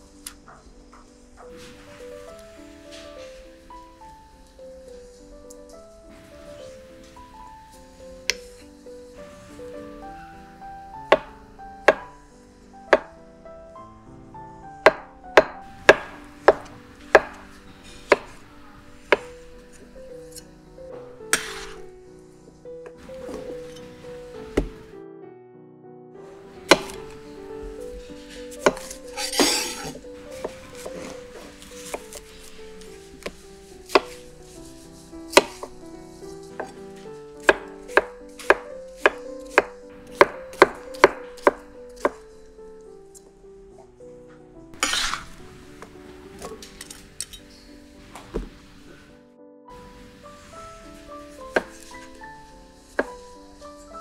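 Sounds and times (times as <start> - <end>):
knife chopping on wooden board: 11.9 - 12.1, 14.9 - 18.4, 21.4 - 21.8, 26.7 - 27.0, 33.2 - 34.2, 35.3 - 35.7, 37.4 - 42.2.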